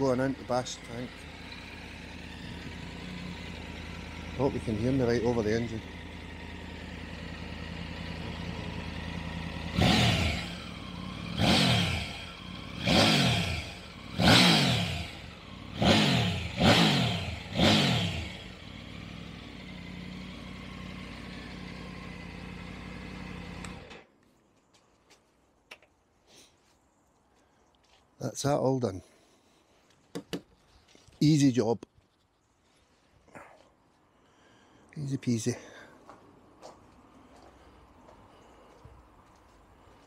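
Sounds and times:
motorcycle engine idling and revving: 0:00.0 - 0:24.1.

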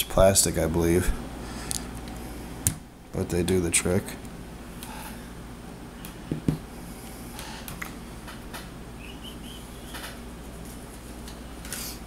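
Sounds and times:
knocks on wooden table: 0:06.3 - 0:06.6.

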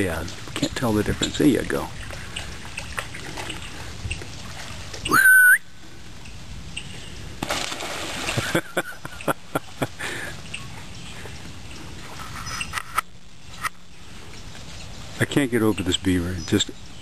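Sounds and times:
water splashing: 0:00.0 - 0:05.6, 0:07.3 - 0:12.2
loud rising whistle: 0:05.1 - 0:05.7.

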